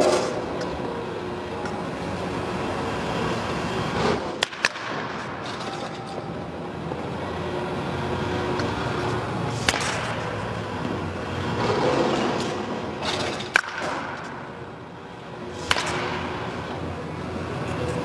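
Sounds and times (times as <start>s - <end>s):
bat cracking balls: 4.0s - 6.2s, 9.5s - 10.4s, 11.5s - 14.6s, 15.6s - 16.6s.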